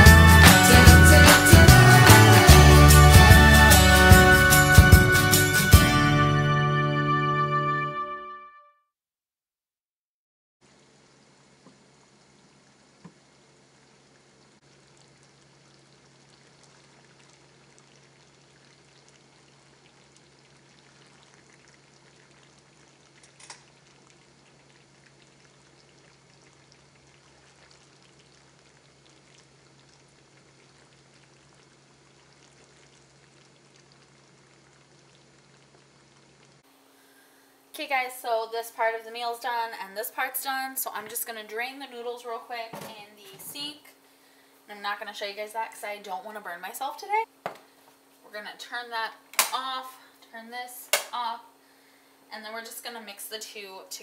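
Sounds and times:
pan simmering and crackling: 10.6 - 54.0
water boiling in a pot: 10.6 - 54.0.

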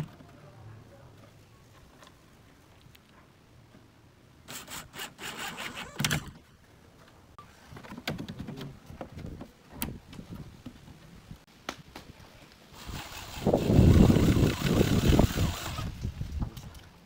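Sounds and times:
wooden knocks and clicks: 7.8 - 10.8.

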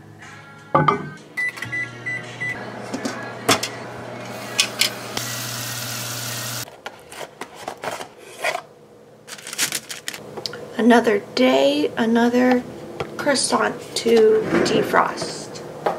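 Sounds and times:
microwave oven humming: 1.2 - 6.6
microwave keypad beeps: 1.4 - 2.6
dishes and packaging clicking: 9.3 - 10.2.

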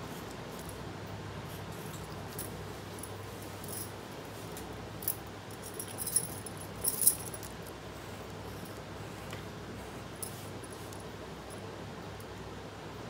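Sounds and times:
steady low hum: 0.0 - 13.0
glass bangles clinking: 5.0 - 7.6.

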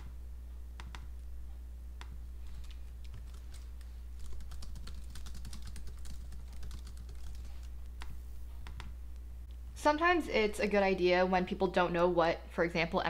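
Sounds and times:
steady low hum: 0.0 - 13.0
keyboard typing: 2.5 - 8.1.

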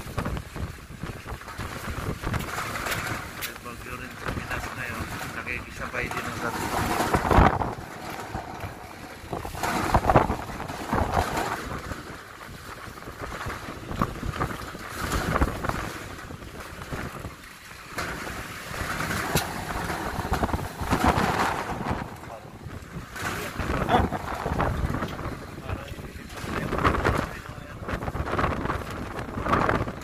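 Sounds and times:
wind gusting on microphone: 0.0 - 30.0.

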